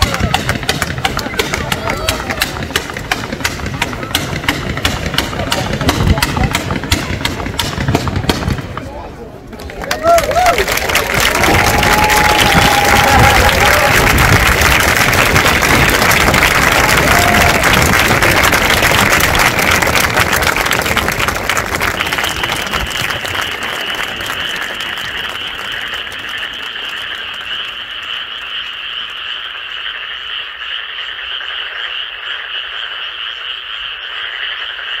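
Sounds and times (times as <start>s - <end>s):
applause: 0.0s - 4.0s, 9.6s - 29.3s.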